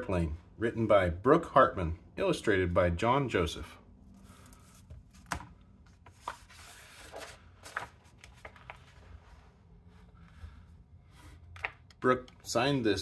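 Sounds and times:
paper pages rustling: 4.1s - 10.2s.

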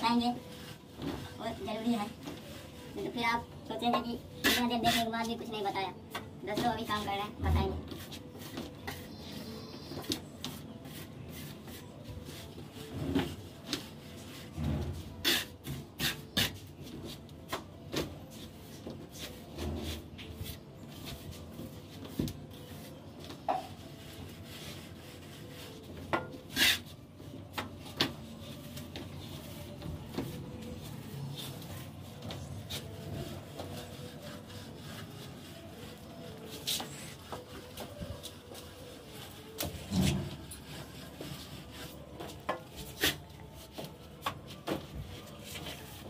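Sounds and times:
trowel scraping plaster: 14.2s - 16.8s.

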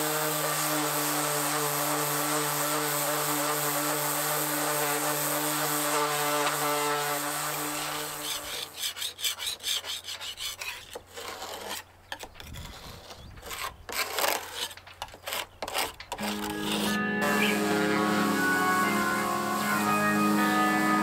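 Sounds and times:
electric orbital sander humming: 0.0s - 8.8s, 16.2s - 21.0s
sanding pad rasping on paint: 0.0s - 11.8s, 12.6s - 21.0s.

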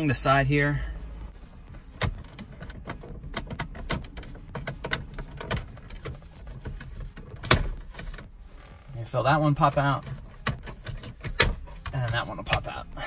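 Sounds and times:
plastic trim clicking and creaking: 1.9s - 8.7s, 9.7s - 12.8s.

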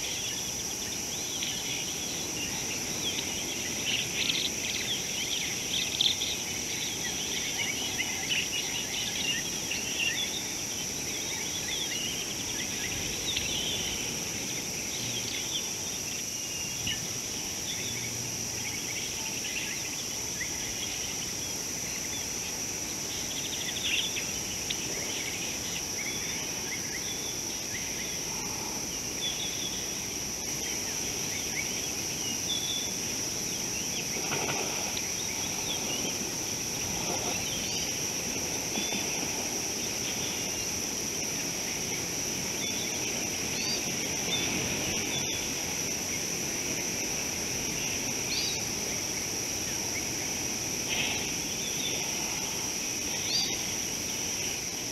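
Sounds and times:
high-pitched insect drone: 0.0s - 54.9s.

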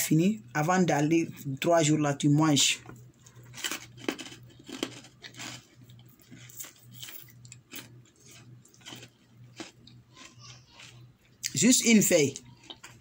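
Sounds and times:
person chewing a leaf: 3.0s - 13.0s.

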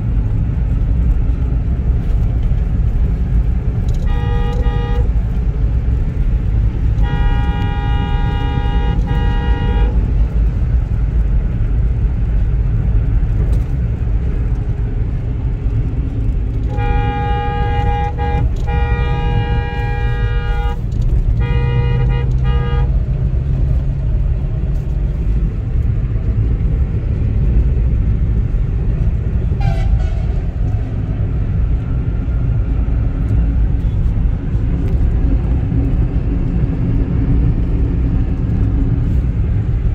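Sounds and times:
car engine and road rumble: 0.0s - 39.9s
vehicle horn honking: 3.9s - 5.2s, 6.8s - 10.0s, 16.6s - 23.0s, 29.6s - 30.4s.

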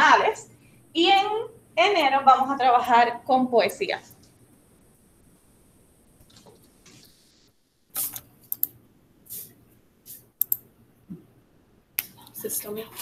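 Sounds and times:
keyboard and mouse clicks: 8.0s - 8.8s, 10.4s - 10.7s.

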